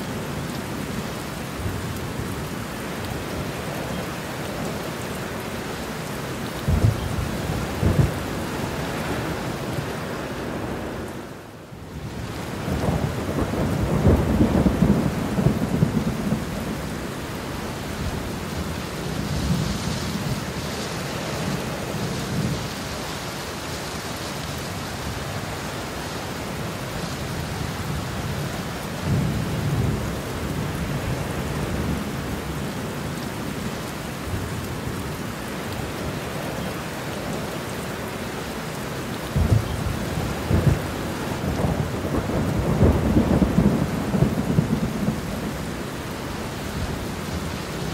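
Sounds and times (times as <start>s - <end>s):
steady rain falling: 0.0s - 47.9s
thunder rumbling: 6.6s - 9.3s, 12.6s - 16.9s, 39.4s - 45.8s.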